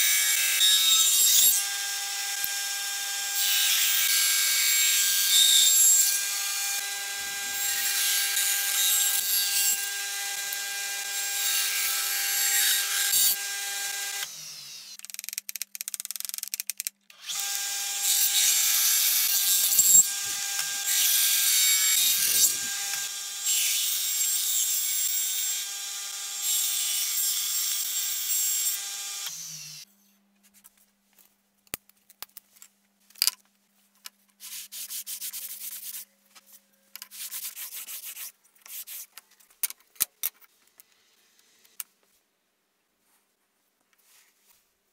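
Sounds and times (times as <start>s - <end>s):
table saw cutting wood: 0.0s - 15.0s, 17.2s - 29.8s.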